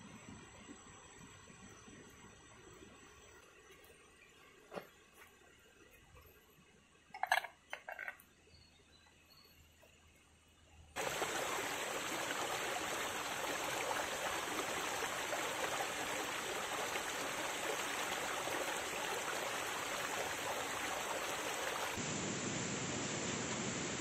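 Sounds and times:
stream rushing over rocks: 11.0 - 24.0.

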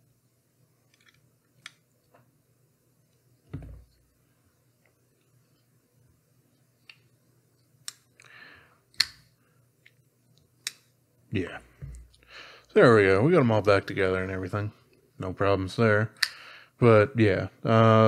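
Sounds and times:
dull thump: 3.5 - 3.9.

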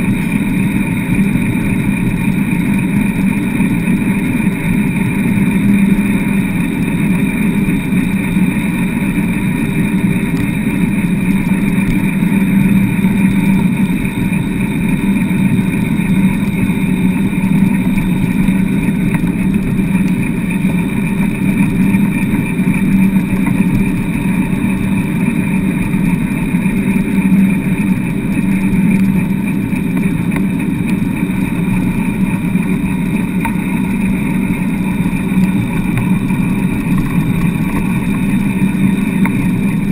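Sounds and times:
wheeled rig rumbling over sand: 0.0 - 39.9.

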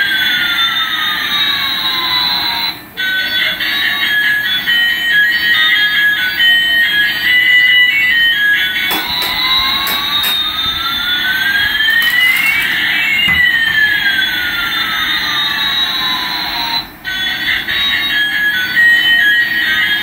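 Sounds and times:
electronic jet engine whine: 4.3 - 20.0
beeping electronic melody: 11.7 - 14.2.

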